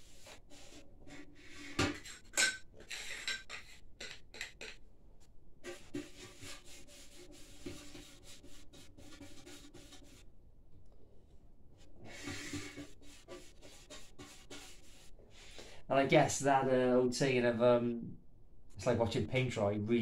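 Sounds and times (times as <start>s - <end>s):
brush rubbing strokes: 0.0s - 1.7s, 5.6s - 10.3s, 11.9s - 15.6s.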